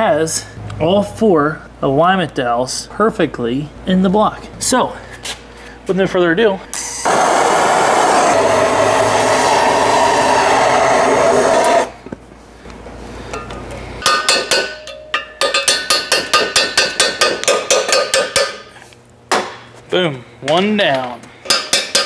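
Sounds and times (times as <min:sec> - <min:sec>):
propane torch flame rushing: 0:07.0 - 0:12.0.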